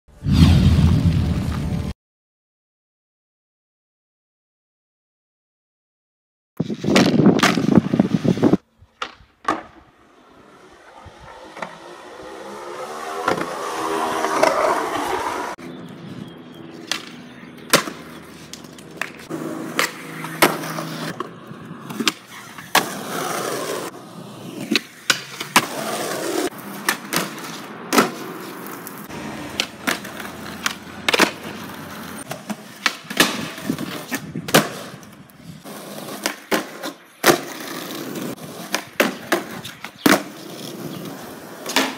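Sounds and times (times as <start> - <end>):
skateboard tail popping: 6.6 - 15.5, 16.8 - 35.3, 36.1 - 41.9
skateboard wheels rolling: 6.6 - 41.9
skateboard slapping down: 9.0 - 9.9, 10.8 - 15.5, 16.9 - 24.0, 24.6 - 35.2, 35.9 - 41.9.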